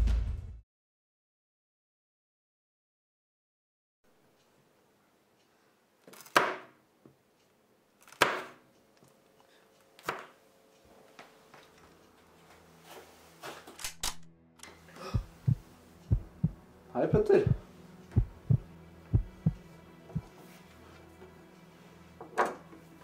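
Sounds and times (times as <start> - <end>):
low steady hum: 14.2 - 20.4
low thumps: 15.2 - 19.6.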